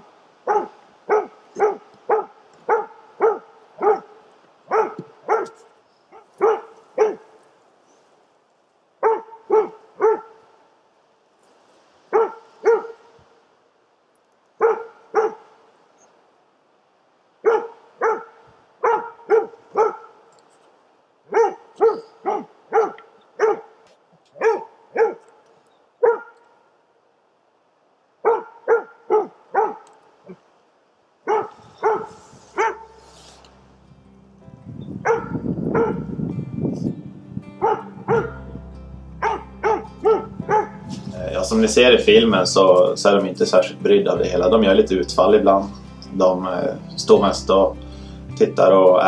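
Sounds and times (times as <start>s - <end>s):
dog barking: 0.4s - 7.4s, 9.0s - 10.6s, 12.1s - 13.2s, 14.6s - 15.5s, 17.4s - 20.3s, 21.3s - 25.4s, 26.0s - 26.6s, 28.2s - 30.4s, 31.2s - 33.4s, 35.0s - 36.2s, 37.6s - 38.6s, 39.2s - 41.1s
faint music: 31.7s - 49.0s.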